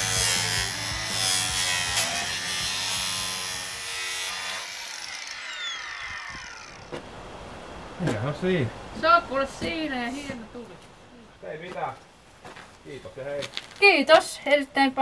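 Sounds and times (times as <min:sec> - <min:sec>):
angle grinder cutting plastic: 0:00.0 - 0:07.0
grinder disc spinning down: 0:00.0 - 0:07.0.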